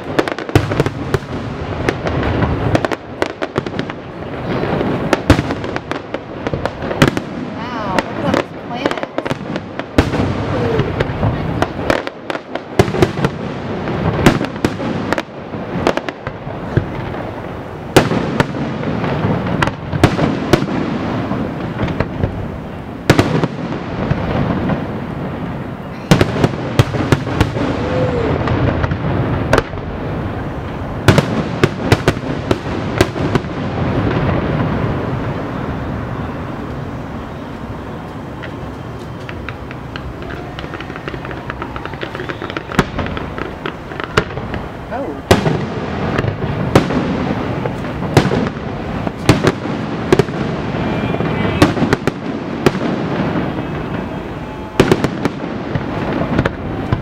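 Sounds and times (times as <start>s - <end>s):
fireworks crackle and rumble: 0.0s - 57.0s
fireworks shells bursting: 38.0s - 44.7s.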